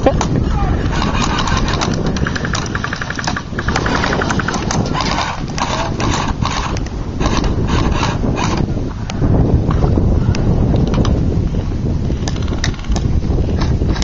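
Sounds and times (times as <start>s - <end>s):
wind buffeting microphone: 0.0s - 14.0s
rapid clicking bursts: 0.8s - 8.7s
sharp clicks: 1.0s - 8.6s.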